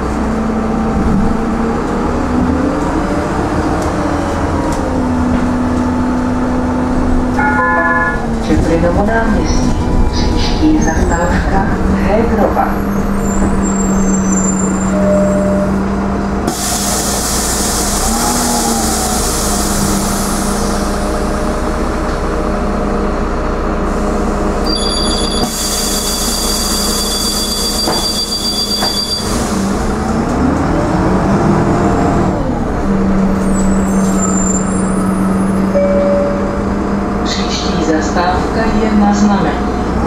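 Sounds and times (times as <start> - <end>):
bus engine humming: 0.0 - 40.0
steady high tone: 7.3 - 8.4, 35.7 - 37.7
compressed air hissing: 16.5 - 20.9.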